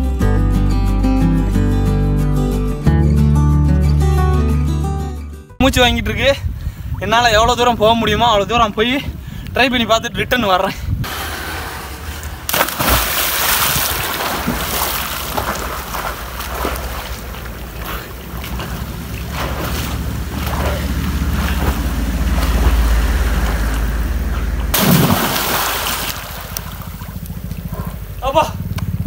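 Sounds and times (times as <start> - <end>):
swimmer diving into water: 11.0 - 28.1
moving water wash: 11.0 - 28.2
churning splashing water: 11.1 - 28.2
low rumble: 13.9 - 29.0.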